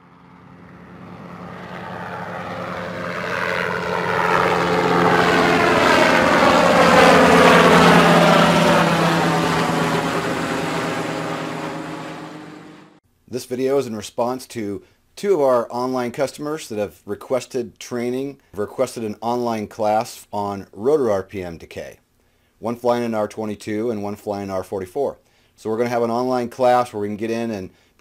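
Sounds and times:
helicopter flying past: 0:00.0 - 0:13.0.

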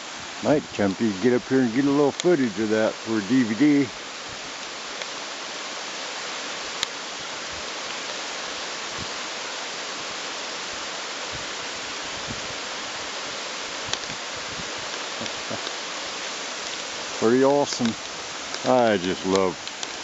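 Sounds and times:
waterfall rushing: 0:00.0 - 0:20.0
light ticks: 0:02.1 - 0:02.3, 0:06.8 - 0:07.0, 0:13.9 - 0:14.2, 0:14.9 - 0:15.8, 0:17.7 - 0:20.0.

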